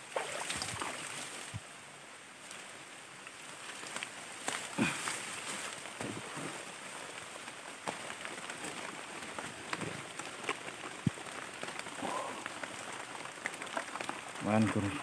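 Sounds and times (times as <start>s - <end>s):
rustling of wet undergrowth: 0.0s - 15.0s
drizzle on leaves: 2.4s - 15.0s.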